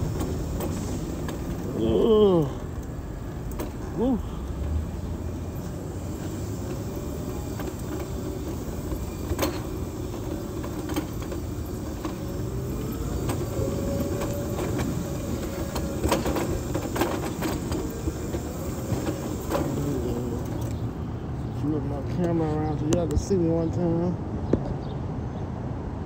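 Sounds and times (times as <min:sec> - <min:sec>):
wheelchair rolling on concrete: 0:00.0 - 0:20.8.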